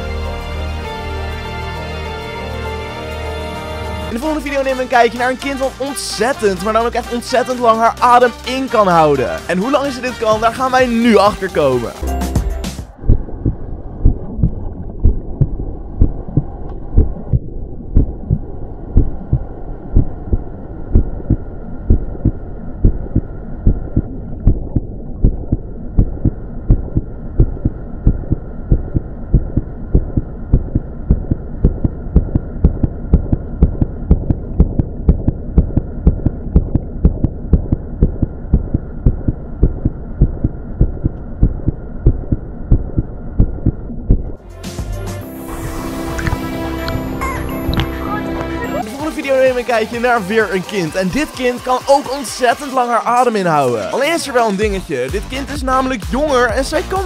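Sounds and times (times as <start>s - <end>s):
heartbeat-like thumping: 12.3s - 44.4s
steady low hum: 12.9s - 44.4s.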